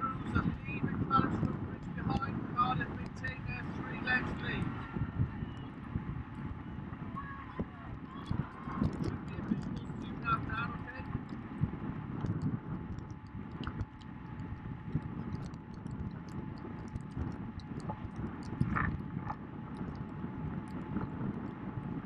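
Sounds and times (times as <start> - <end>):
outboard motor droning: 0.0 - 22.0
water noise: 0.0 - 22.0
wind: 0.0 - 22.0
faint ticks: 7.8 - 22.0.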